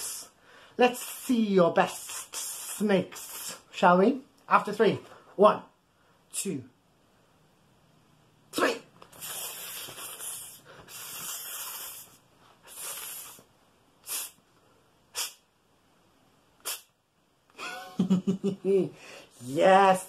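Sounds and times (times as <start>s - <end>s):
man hissing like a snake: 0.0s - 3.8s, 9.1s - 14.4s, 15.1s - 15.5s, 16.6s - 17.0s.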